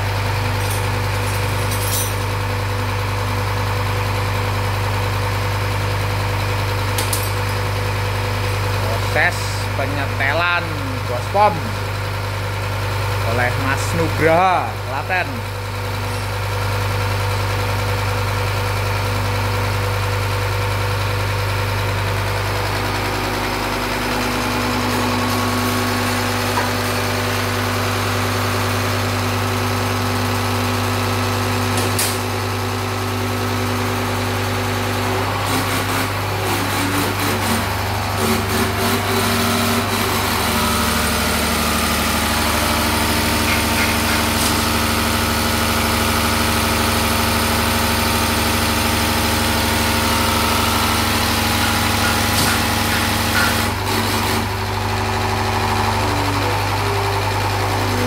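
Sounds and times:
test bench mechanical hum: 19.7 - 45.4, 49.8 - 58.0.

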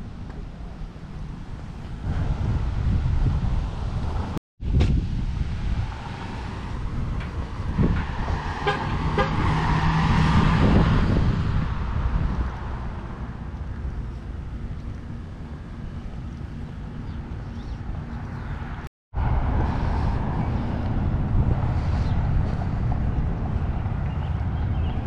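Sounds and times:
vehicle passing by: 5.3 - 25.0.

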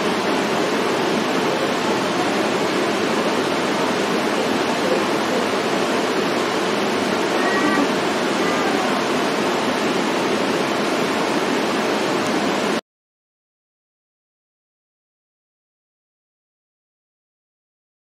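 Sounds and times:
rushing water of waterfall: 0.0 - 12.8.

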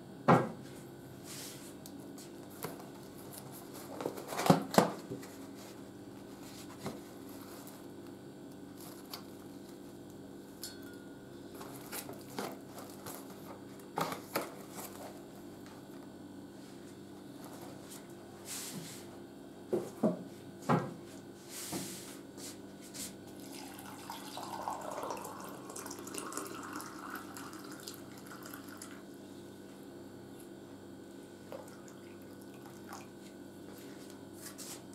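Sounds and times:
tea box and bags rustling: 8.7 - 9.3
electric kettle boiling: 23.4 - 29.3, 31.4 - 33.5.

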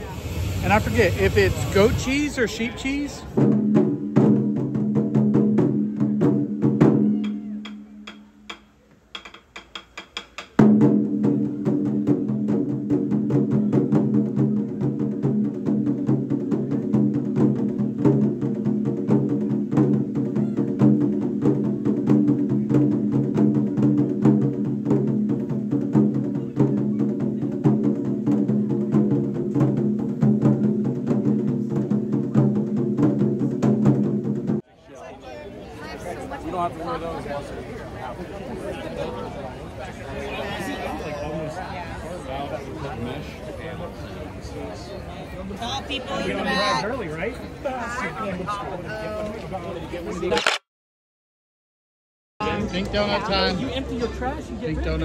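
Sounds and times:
taiko drumming: 3.4 - 34.6.

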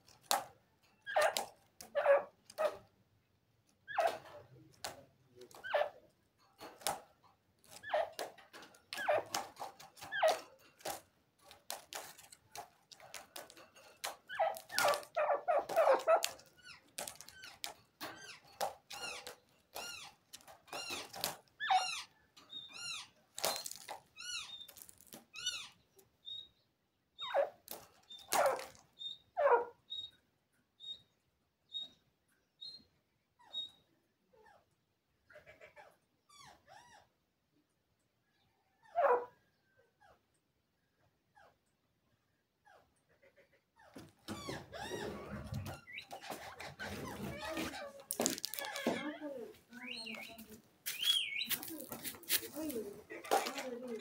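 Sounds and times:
bird calling: 45.0 - 51.9.

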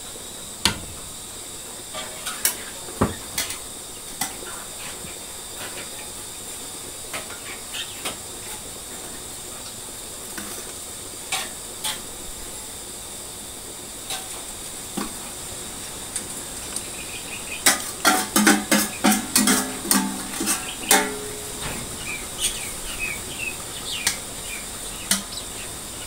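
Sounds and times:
metal spoon scraping a pot: 17.6 - 21.6.

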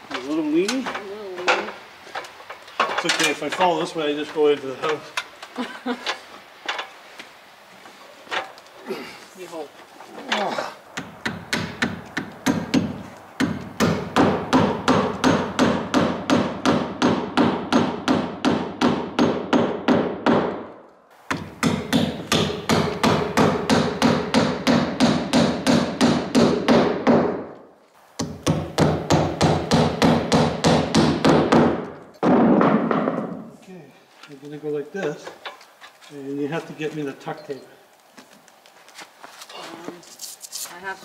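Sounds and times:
hammer driving nails: 11.0 - 20.7, 21.3 - 27.6, 28.2 - 33.5.

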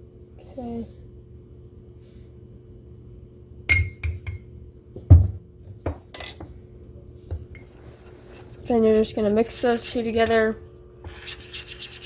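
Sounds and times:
metal spoon clinking glass bowl: 3.7 - 4.4
spoon tapping on counter: 3.7 - 4.4.

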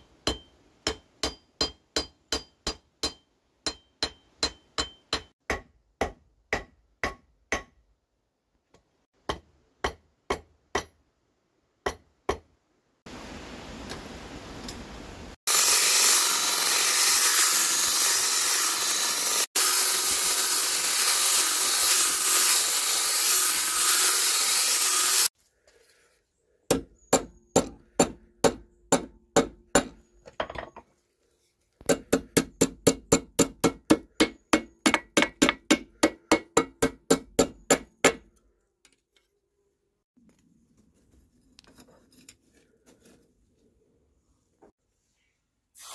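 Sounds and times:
hammer striking hot steel on anvil: 0.2 - 7.7.

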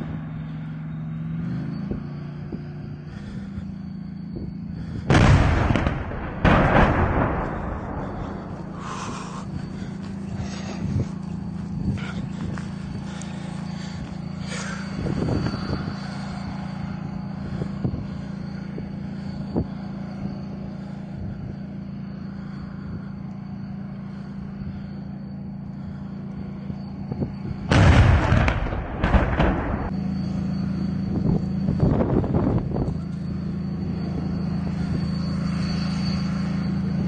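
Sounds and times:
tank diesel engine droning: 0.0 - 37.0
tank gun firing blast: 5.1 - 8.6, 27.7 - 30.0.

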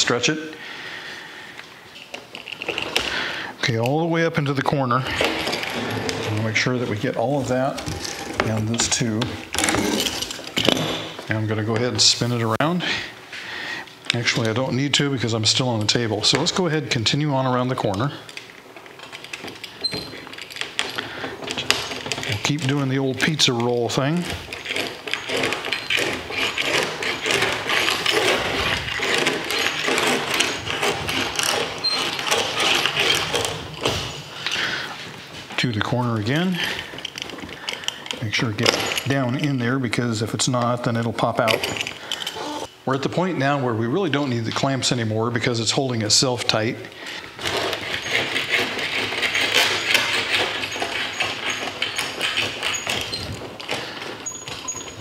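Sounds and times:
spline roller rattling: 4.4 - 12.1, 18.9 - 34.2, 47.4 - 55.0.

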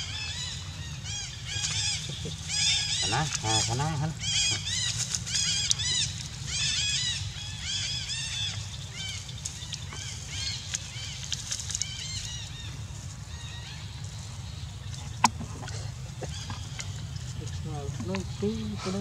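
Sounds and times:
young monkeys squealing: 0.0 - 9.2.

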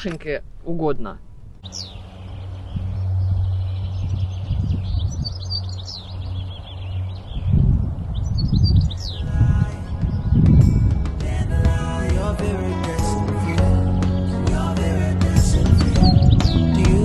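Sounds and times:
low gusty rumble: 0.0 - 12.3
bird chirping and trilling: 1.6 - 11.0, 15.6 - 16.8.

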